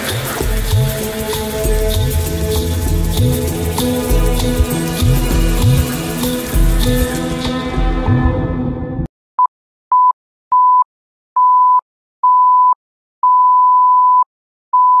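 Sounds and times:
percussion music: 0:00.0 - 0:08.8
electronic countdown beeps: 0:11.4 - 0:15.0.

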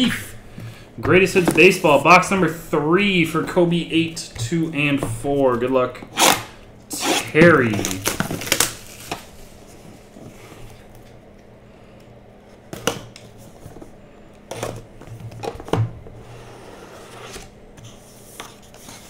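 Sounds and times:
seal being slit: 0:06.2 - 0:06.5.

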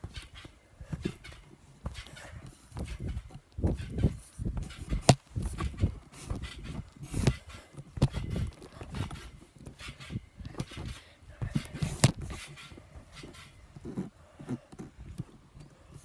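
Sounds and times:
phone camera handling knocks: 0:11.6 - 0:12.4.

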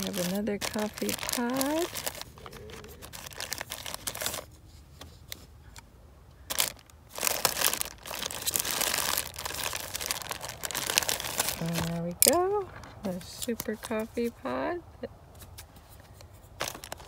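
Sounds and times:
plastic bag crinkling: 0:00.0 - 0:04.5, 0:06.5 - 0:14.4, 0:16.5 - 0:17.0.

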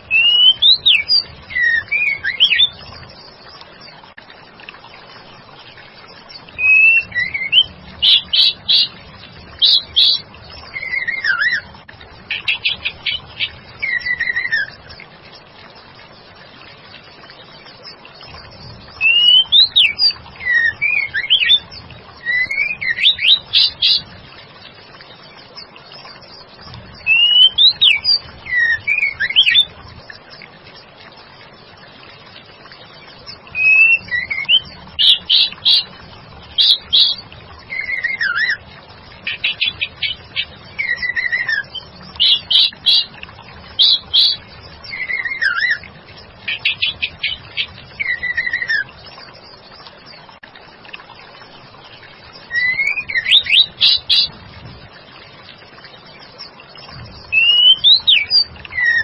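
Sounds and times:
bird whistling calls: 0:00.1 - 0:02.7, 0:46.5 - 0:48.9, 0:52.5 - 0:54.3, 0:57.3 - 0:59.0.

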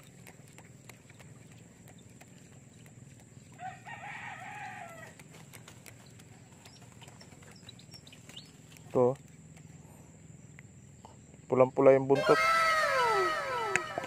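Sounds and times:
faint rooster crowing: 0:03.5 - 0:05.2, 0:12.2 - 0:14.0.

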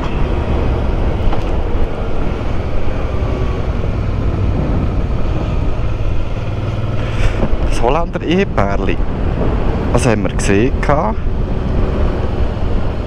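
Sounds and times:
motorcycle engine and road noise: 0:00.0 - 0:13.0
wind on microphone: 0:03.3 - 0:06.2.

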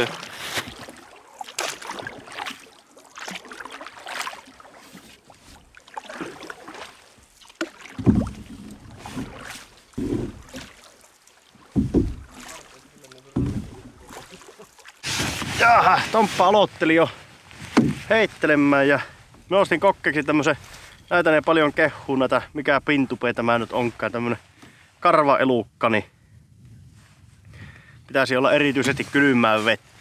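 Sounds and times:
paddle strokes splashing in water: 0:00.0 - 0:16.6.

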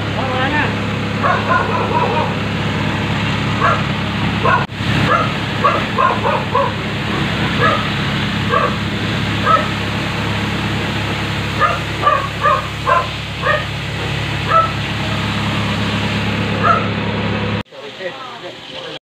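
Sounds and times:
steady low hum: 0:00.0 - 0:17.7
dog barking in high yips: 0:01.2 - 0:02.3, 0:04.4 - 0:06.8, 0:07.6 - 0:07.9, 0:08.5 - 0:08.8, 0:09.4 - 0:09.7, 0:11.6 - 0:13.7, 0:14.5 - 0:14.8, 0:16.6 - 0:16.9.

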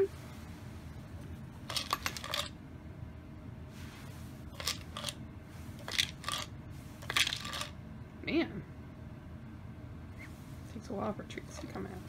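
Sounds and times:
cat treats rattling in plastic toy: 0:01.7 - 0:02.5, 0:04.6 - 0:05.2, 0:05.8 - 0:07.8.

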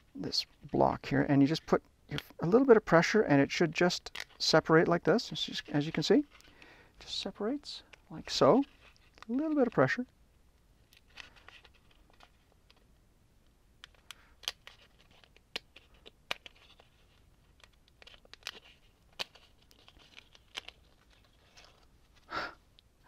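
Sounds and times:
faint clicks and scraping: 0:05.6 - 0:07.2, 0:07.8 - 0:10.2, 0:10.8 - 0:22.9.

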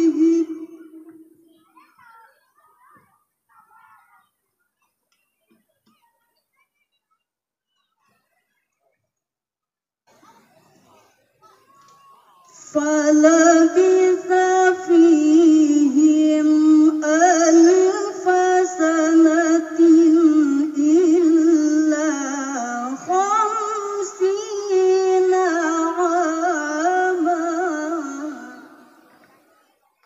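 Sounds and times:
woman chanting melodically: 0:00.0 - 0:01.3, 0:12.5 - 0:29.1.

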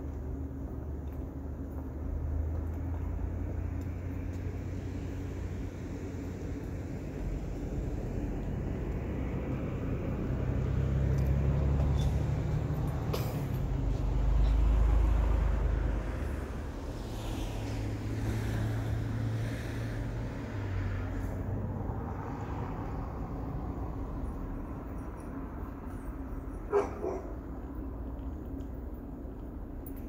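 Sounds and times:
vehicle passing: 0:01.4 - 0:29.6.

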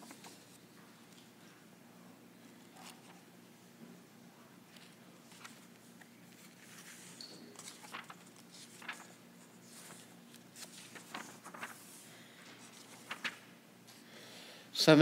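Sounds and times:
paper pages turning: 0:00.0 - 0:01.3, 0:02.7 - 0:03.2, 0:04.7 - 0:13.6.

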